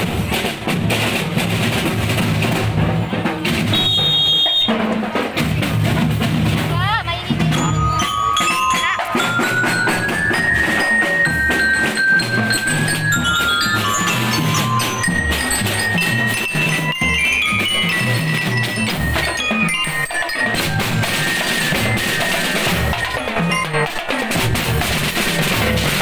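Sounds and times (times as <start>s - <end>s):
snare and bass drums: 0.0s - 26.0s
bell-lyre melody: 7.2s - 26.0s.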